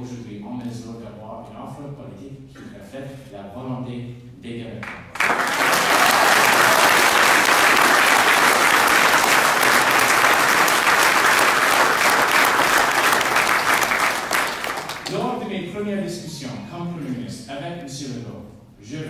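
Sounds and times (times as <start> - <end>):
audience applauding: 5.1 - 15.2.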